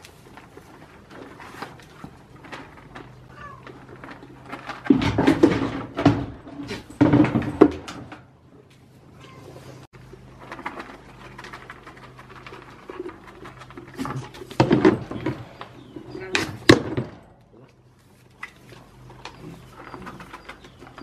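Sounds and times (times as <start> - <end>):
goats crunching crackers: 0.0 - 5.1, 10.0 - 16.6, 17.4 - 21.0.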